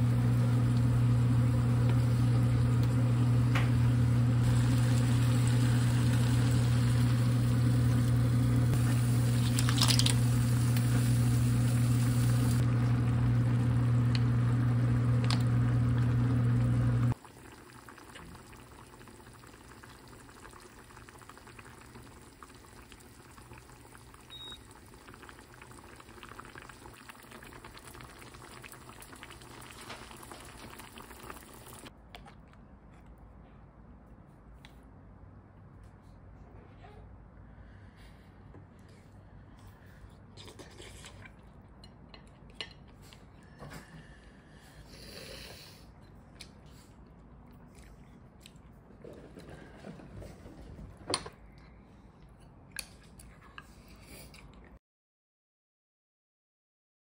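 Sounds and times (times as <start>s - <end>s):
meat and onions sizzling: 0.0s - 17.1s
low machine hum: 0.0s - 17.2s.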